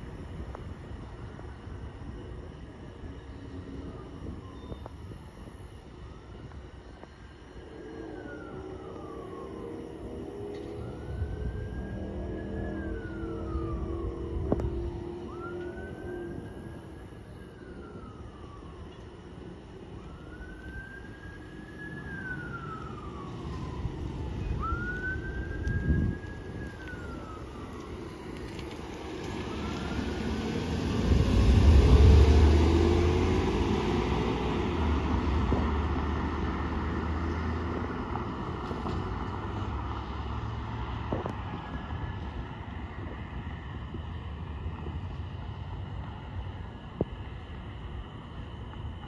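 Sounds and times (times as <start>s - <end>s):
siren wailing: 2.7s - 40.2s
vehicle driving past: 28.0s - 41.1s.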